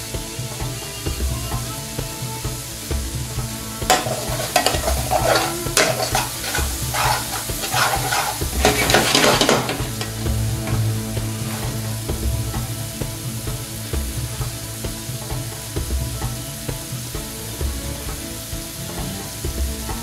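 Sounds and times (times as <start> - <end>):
curry sizzling in a frying pan: 0.0 - 20.0
steady low hum: 0.0 - 20.0
metal spoon scraping a pan: 3.9 - 10.2.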